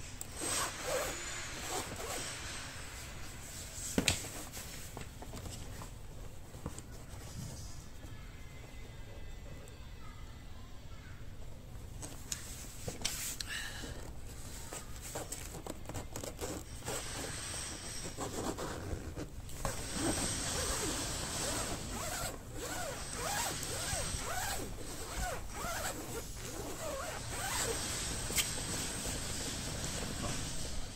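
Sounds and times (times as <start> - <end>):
zipper zipping: 0.3 - 2.4, 16.2 - 30.3.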